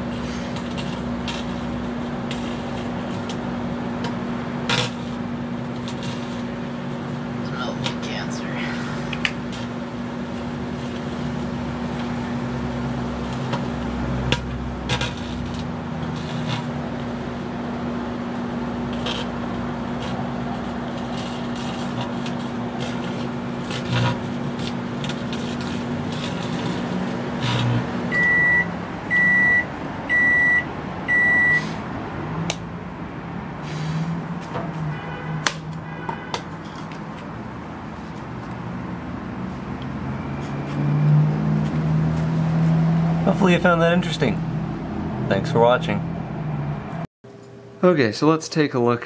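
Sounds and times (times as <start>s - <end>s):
electrical crackles and pops: 0.0s - 8.5s, 13.0s - 17.6s, 18.8s - 27.9s
microwave oven humming: 0.0s - 33.5s
microwave beeps: 28.1s - 31.7s.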